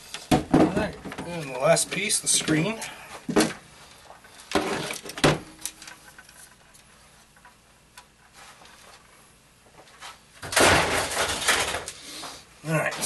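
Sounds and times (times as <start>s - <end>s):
plastic and metal panels clattering: 0.1s - 3.6s, 4.3s - 6.7s, 10.4s - 12.0s.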